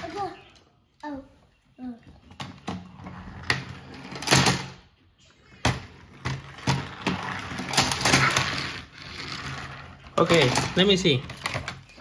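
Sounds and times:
plastic toy clicks and rattles: 7.6s - 8.7s.

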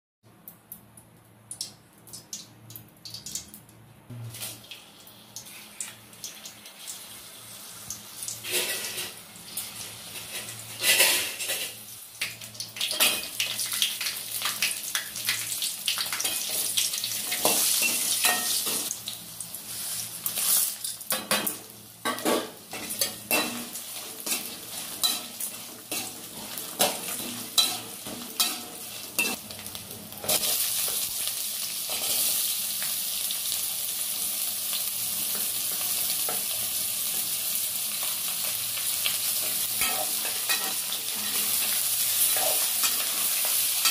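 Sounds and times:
food sizzling in hot oil: 4.3s - 43.9s
metal ladle scraping pan: 8.4s - 9.2s, 10.1s - 11.8s.

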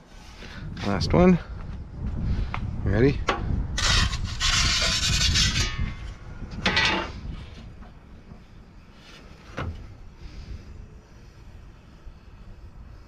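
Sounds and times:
metal peel scraping stone: 3.8s - 7.2s.

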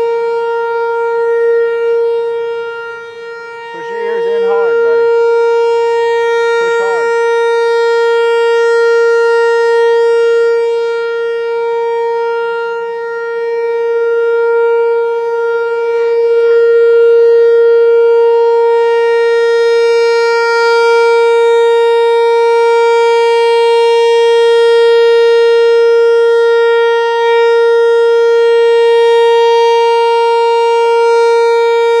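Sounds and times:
warning siren steady tone: 0.0s - 32.0s.

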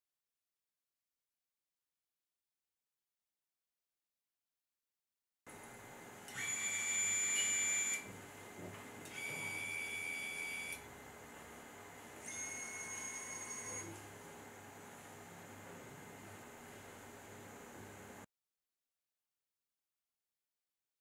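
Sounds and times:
manipulator motor whine: 6.3s - 8.2s, 9.1s - 10.8s, 12.2s - 14.1s.

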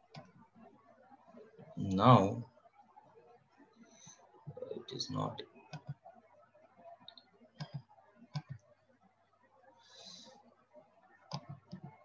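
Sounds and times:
computer mouse clicks: 5.7s - 6.0s, 7.1s - 8.7s, 11.2s - 12.0s.

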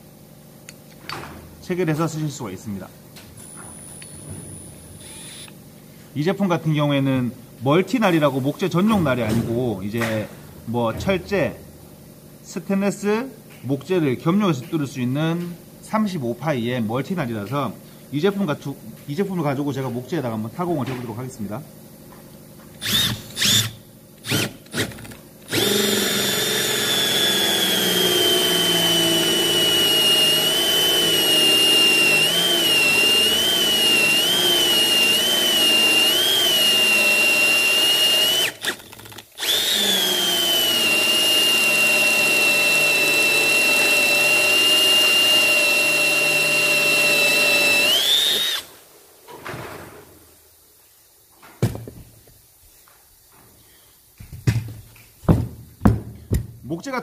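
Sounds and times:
drill motor whining under load: 3.4s - 5.5s, 22.8s - 48.7s
drill trigger blips: 5.0s - 5.6s, 22.8s - 48.7s.

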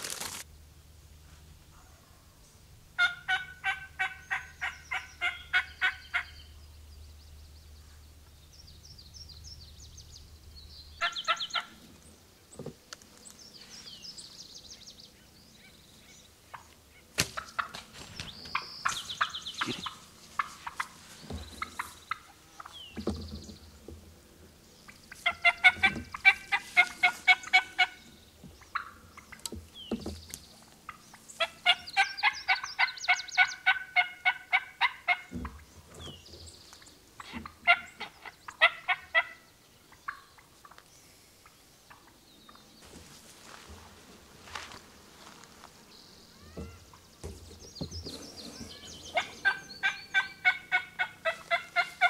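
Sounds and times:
turkey calls: 3.0s - 6.6s, 11.0s - 11.8s, 15.6s - 23.2s, 24.8s - 29.6s, 30.8s - 42.6s, 48.0s - 52.0s.

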